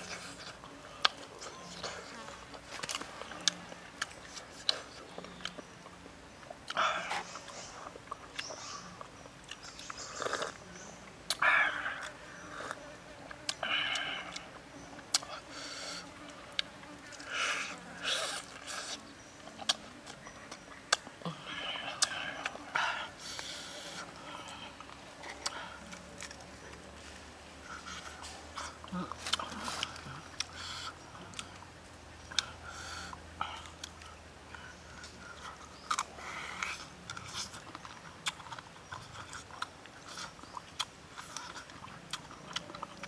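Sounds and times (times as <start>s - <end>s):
person chewing: 6.6s - 10.7s, 11.3s - 26.9s, 27.6s - 43.0s.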